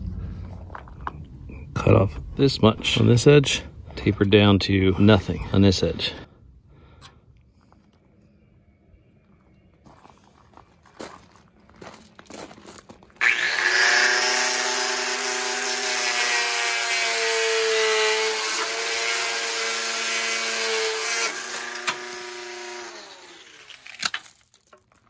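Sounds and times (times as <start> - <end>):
power tool grinding: 13.2 - 24.8.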